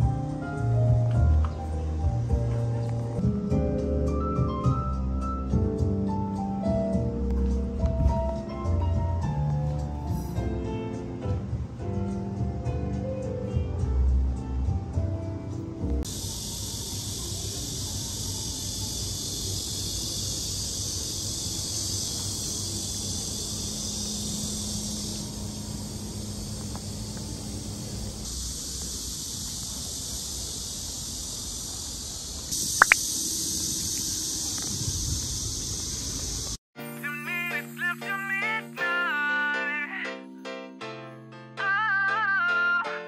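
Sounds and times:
cicadas buzzing: 16.0s - 36.6s.

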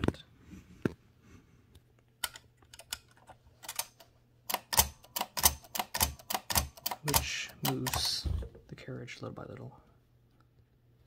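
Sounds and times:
typewriter escapement clicking: 3.6s - 8.2s.

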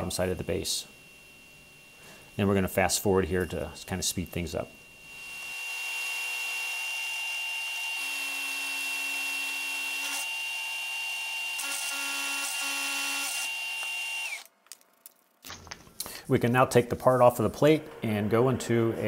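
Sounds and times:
milling machine high whine: 0.0s - 14.5s.

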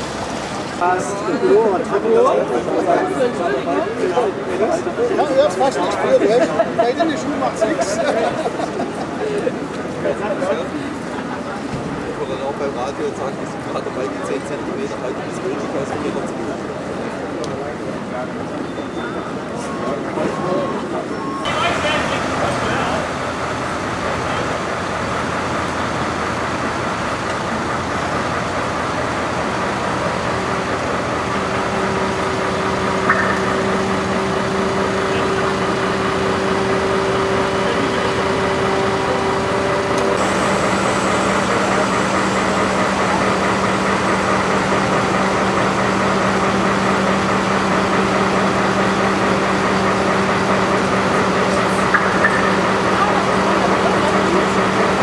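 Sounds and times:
diesel engine running: 0.0s - 3.4s, 21.5s - 55.0s.

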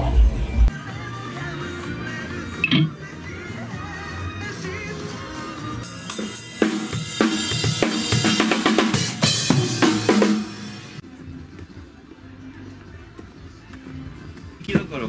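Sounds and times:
drum kit playing: 5.8s - 11.0s.

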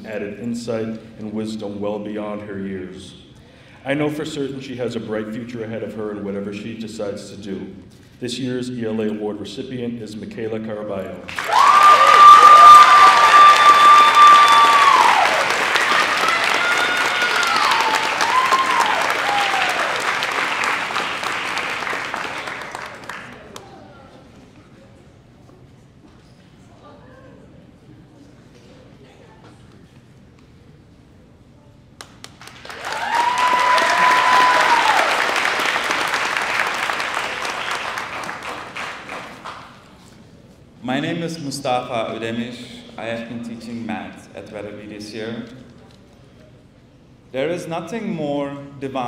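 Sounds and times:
audience applauding: 11.3s - 23.8s, 32.0s - 39.8s
high held whoops: 11.4s - 20.0s, 32.7s - 35.3s
high-pitched cheer: 11.4s - 22.7s, 32.7s - 35.7s.

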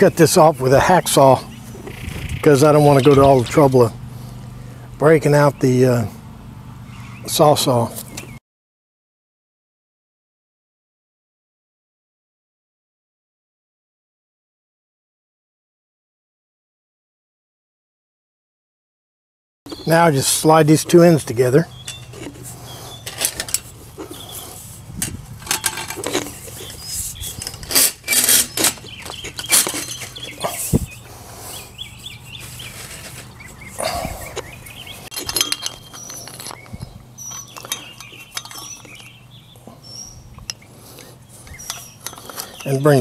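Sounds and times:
metal pipes clinking and knocking: 2.9s - 3.8s, 21.8s - 24.3s, 25.0s - 30.9s, 34.3s - 39.1s, 41.4s - 43.0s.

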